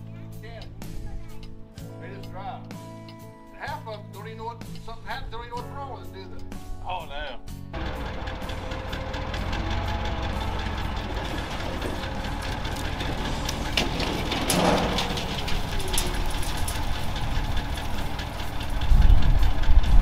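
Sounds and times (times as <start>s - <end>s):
truck engine running: 7.7s - 20.0s.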